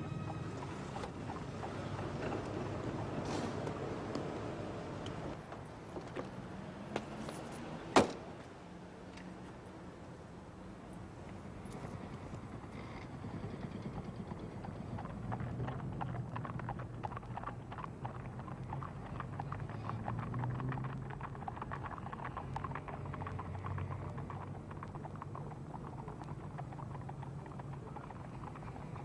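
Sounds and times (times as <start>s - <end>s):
horse hooves clip-clopping: 0.0s - 5.4s, 11.6s - 29.0s
low steady rumble: 11.4s - 29.0s.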